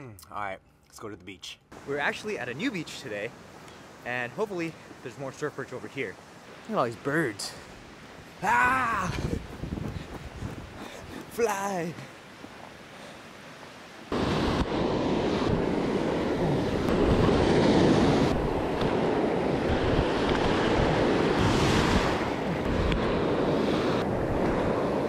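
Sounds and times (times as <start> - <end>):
ocean surf washing in shallows: 1.7 - 25.0
wind blowing on microphone: 7.9 - 11.4, 14.1 - 25.0.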